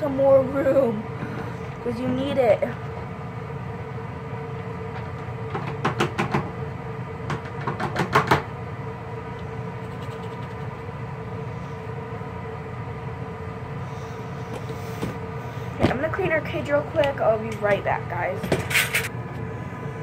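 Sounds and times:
mechanical hum: 0.0s - 20.0s
rabbit cage rattling and clanking: 18.4s - 19.1s.

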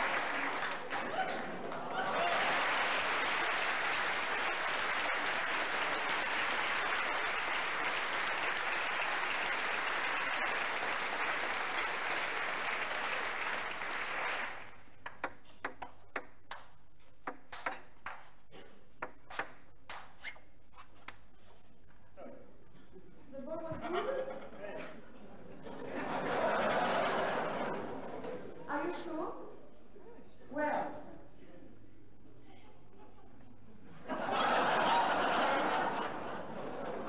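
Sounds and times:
audience applauding: 0.0s - 15.4s, 25.9s - 28.5s, 34.1s - 37.0s.

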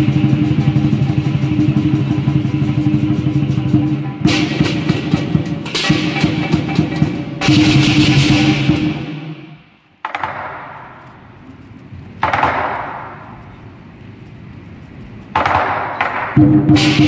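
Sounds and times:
hand cymbals crashing and ringing: 0.0s - 9.7s
lion dance drum: 0.0s - 13.6s, 15.3s - 17.0s.

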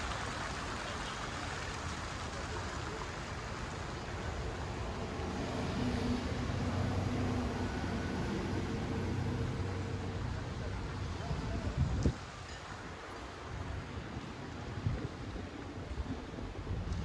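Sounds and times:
outdoor rushing noise: 0.0s - 12.3s.

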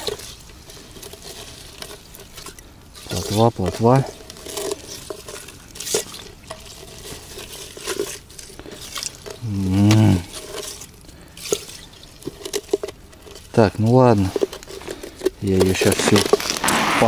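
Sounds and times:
water sloshing and splashing: 0.0s - 17.0s
man humming: 9.4s - 10.3s.

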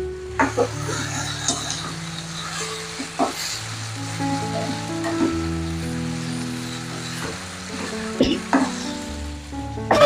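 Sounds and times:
background music: 0.0s - 10.0s
spatula scraping wok: 0.2s - 10.0s.

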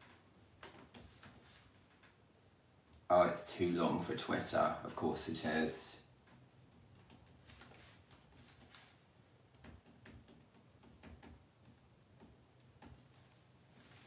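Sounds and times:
typing on computer keyboard: 6.3s - 8.7s, 9.5s - 13.4s.

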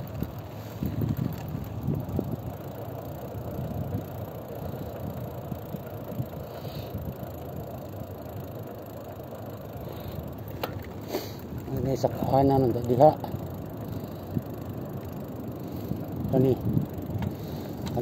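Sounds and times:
wind noise on microphone: 0.0s - 2.6s, 16.2s - 18.0s
moving vehicle rumble: 0.0s - 18.0s.

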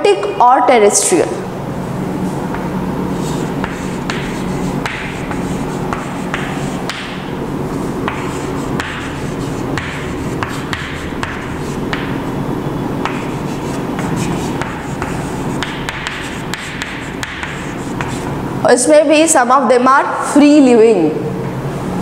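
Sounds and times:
steady low hum: 0.0s - 22.0s
chalk tapping on chalkboard: 2.5s - 12.3s, 13.0s - 18.4s.

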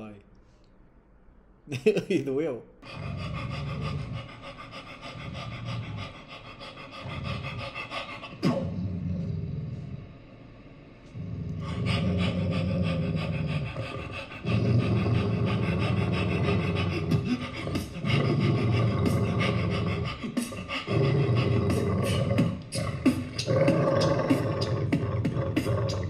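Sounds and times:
beatboxing: 7.0s - 8.8s, 11.6s - 26.0s.

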